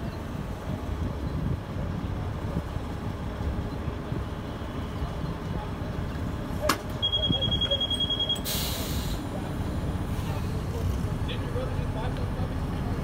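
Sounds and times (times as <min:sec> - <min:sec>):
diesel bus idling: 0:00.0 - 0:13.0
door-closing beep: 0:06.6 - 0:08.6
pneumatic air hiss: 0:08.4 - 0:09.2.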